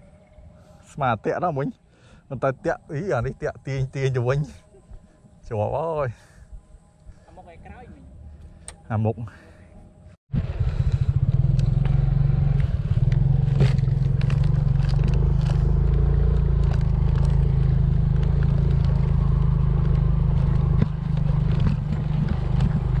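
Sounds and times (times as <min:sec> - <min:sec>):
motorcycle engine running: 0:10.3 - 0:23.0
bike clattering and rattling: 0:12.6 - 0:23.0.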